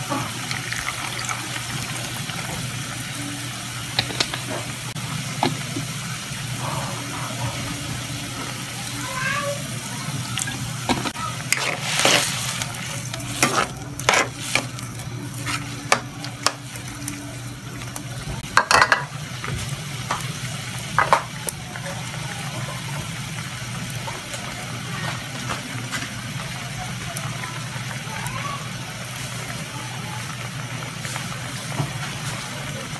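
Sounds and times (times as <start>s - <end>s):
food sizzling in a wok: 0.0s - 32.9s
utensil scraping and clinking on pan: 10.9s - 14.8s.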